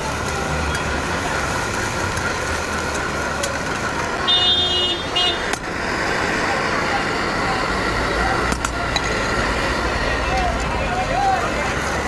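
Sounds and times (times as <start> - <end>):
busy roadside food stall: 0.0 - 12.0
traffic going by: 0.0 - 12.0
vehicle horn: 4.2 - 5.5.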